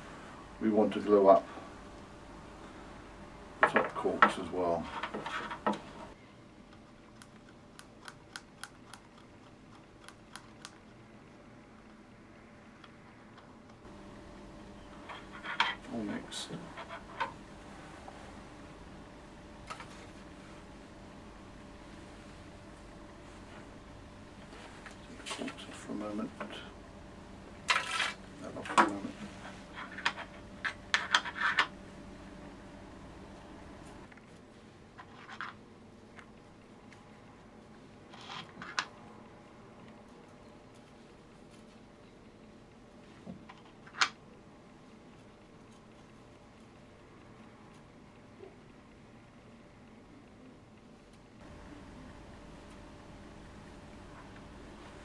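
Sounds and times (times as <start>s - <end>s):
handling noises on a workbench: 3.6s - 6.2s, 15.0s - 15.9s, 27.7s - 31.8s, 34.1s - 35.6s.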